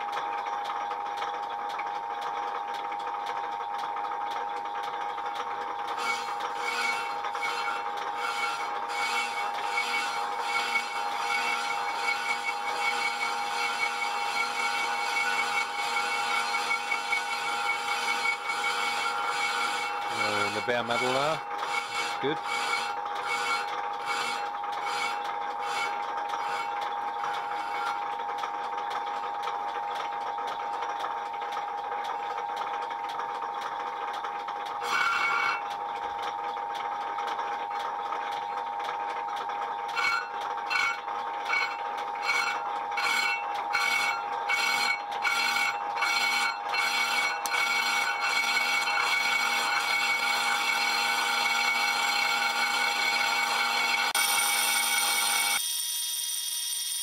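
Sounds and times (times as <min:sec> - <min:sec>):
lathe whining: 0:00.0 - 0:55.6.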